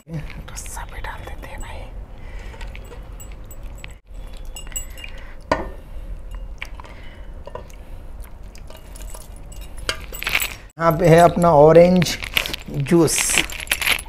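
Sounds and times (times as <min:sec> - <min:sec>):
rings clinking against bowl: 0:02.5 - 0:05.6, 0:06.2 - 0:06.6, 0:08.6 - 0:11.6, 0:12.2 - 0:14.0
metal bowl clinking and knocking: 0:08.6 - 0:11.0.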